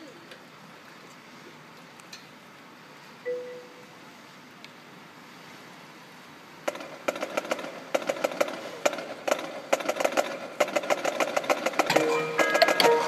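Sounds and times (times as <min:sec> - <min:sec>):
snare drumline: 0:06.7 - 0:13.0.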